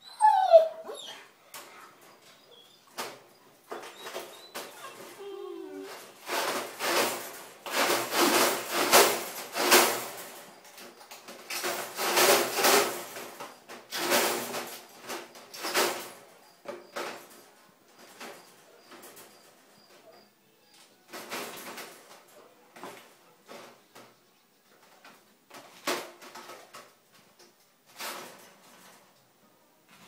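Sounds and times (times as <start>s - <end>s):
wire dog crate rattling: 3.0s - 16.3s, 21.1s - 22.9s, 27.9s - 29.1s.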